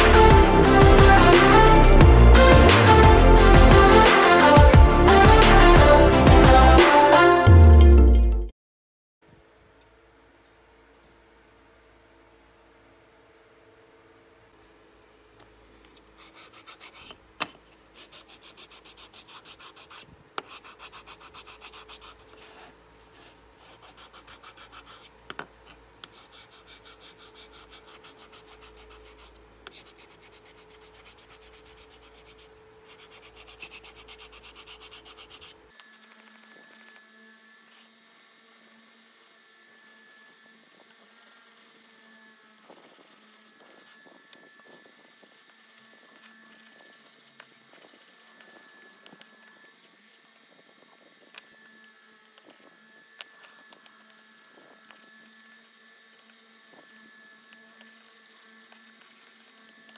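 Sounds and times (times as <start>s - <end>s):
sanding block rubbing wood: 16.2s - 17.2s, 17.8s - 25.1s, 26.0s - 35.6s, 38.1s - 44.1s, 44.8s - 49.4s.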